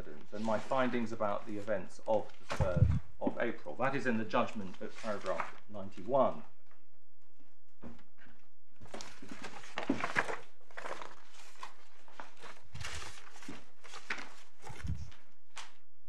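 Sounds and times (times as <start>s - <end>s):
paper rustling: 0.0s - 3.0s, 4.3s - 6.1s, 8.8s - 15.9s.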